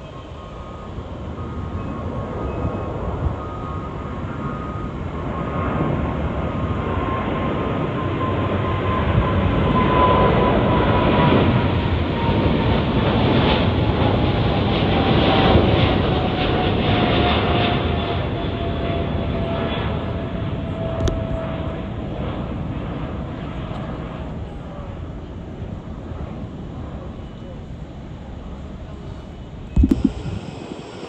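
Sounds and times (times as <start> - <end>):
jet engines at takeoff: 0.0 - 31.0.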